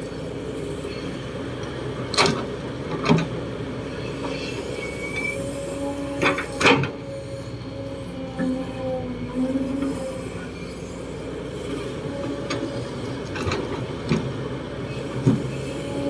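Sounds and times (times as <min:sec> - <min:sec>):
excavator diesel engine: 0:00.0 - 0:16.0
hydraulic whine: 0:03.9 - 0:16.0.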